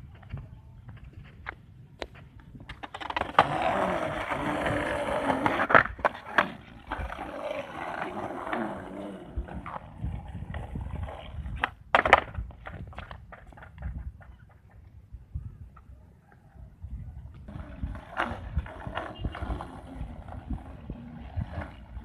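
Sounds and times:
skateboard clacks: 0.0 - 15.0, 17.4 - 22.0
skateboard wheels rolling on concrete: 0.0 - 22.0
skateboard pop: 11.5 - 14.8.

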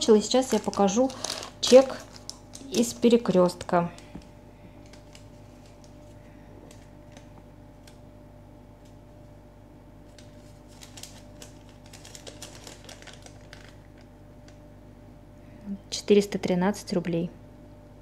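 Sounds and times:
paper receipt crinkling: 0.0 - 4.1, 4.7 - 8.0, 10.0 - 14.6
faint hum: 0.0 - 18.0.

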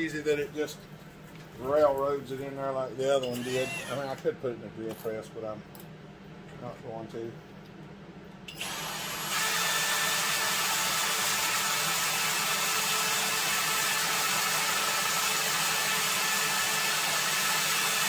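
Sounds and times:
cordless drill drilling metal: 3.2 - 4.2, 8.5 - 18.0.

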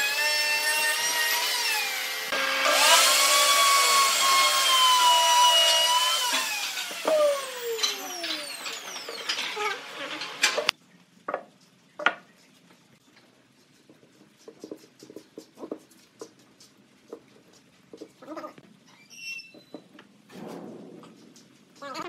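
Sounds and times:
wood router spinning down: 0.0 - 10.5
high squeak: 18.9 - 19.9.

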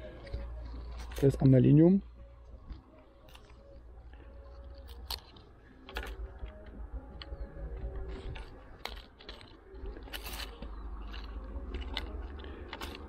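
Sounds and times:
broken camera parts clicking: 4.7 - 7.3.

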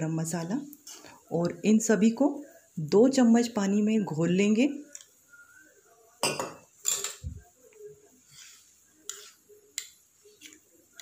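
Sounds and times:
spoon scraping metal bowl: 8.3 - 11.0.

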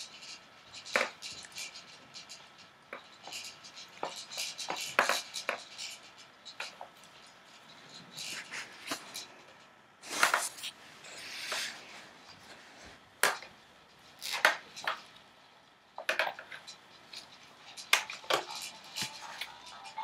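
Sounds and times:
plastic toy clacks and knocks: 0.2 - 7.2, 13.2 - 15.2, 16.0 - 20.0.

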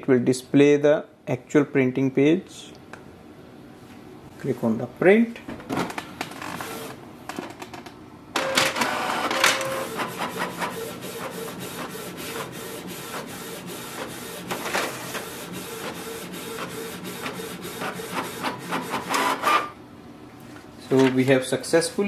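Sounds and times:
printer motor whining: 8.4 - 19.8
rapid clicks of paper feeding: 9.5 - 19.6.

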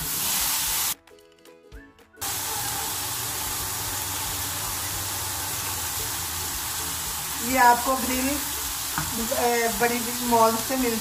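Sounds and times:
chicken sizzling on grill pan: 2.2 - 11.0.

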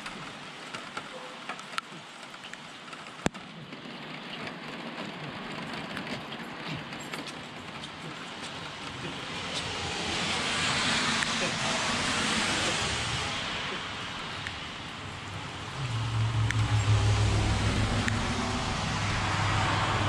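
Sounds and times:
steady rain on wet street: 0.0 - 20.0
light ticks: 16.4 - 16.8.

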